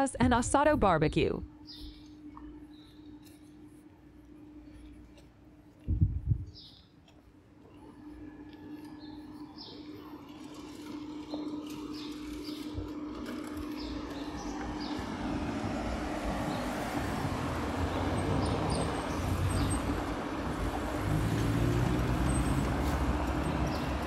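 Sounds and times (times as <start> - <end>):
traffic tyres and engines: 6.6 - 24.0
car passing close: 13.3 - 24.0.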